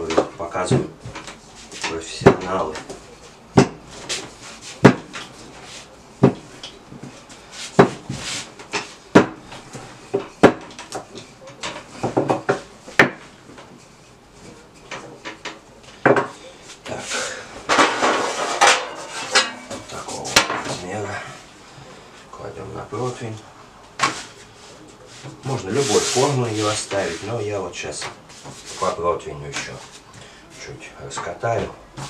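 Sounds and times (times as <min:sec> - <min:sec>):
rattling and rustling: 0:17.6 - 0:20.8.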